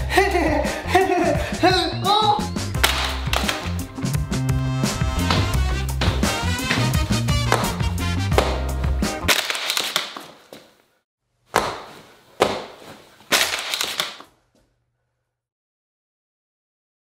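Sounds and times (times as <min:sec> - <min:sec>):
music: 0:00.0 - 0:09.3
foot stomping on hard floor: 0:02.8 - 0:03.8, 0:04.5 - 0:10.7, 0:11.6 - 0:13.8.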